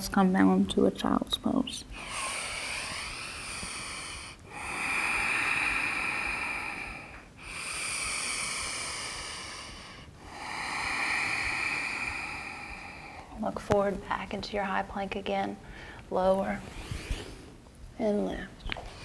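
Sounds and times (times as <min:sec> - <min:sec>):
woman breathing deeply: 0:01.9 - 0:13.4, 0:15.6 - 0:17.6.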